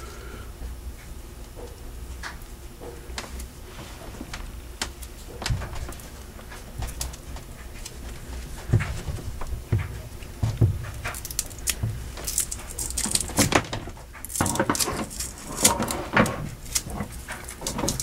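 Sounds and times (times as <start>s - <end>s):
rope rustling: 3.2s - 18.0s
tape peeling with crackles: 3.2s - 18.0s.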